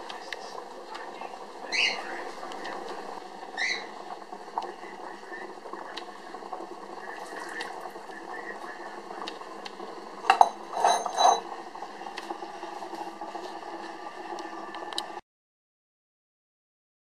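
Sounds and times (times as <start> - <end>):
glass and ceramic clinking: 10.2 - 11.5.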